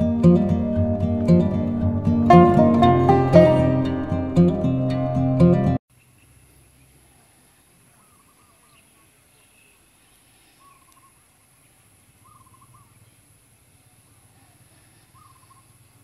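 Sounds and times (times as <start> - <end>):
quavering bird calls: 5.9 - 16.0.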